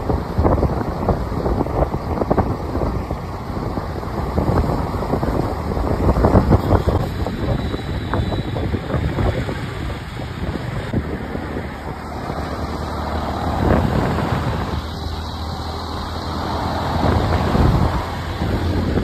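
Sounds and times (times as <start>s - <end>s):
diesel pickup truck driving past: 0.0s - 19.0s
wind buffeting microphone: 0.0s - 19.0s
vehicle passing: 2.3s - 19.0s.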